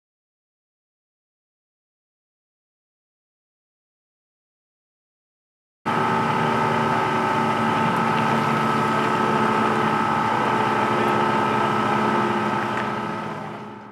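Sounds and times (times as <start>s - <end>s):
engine idling: 5.9s - 13.9s.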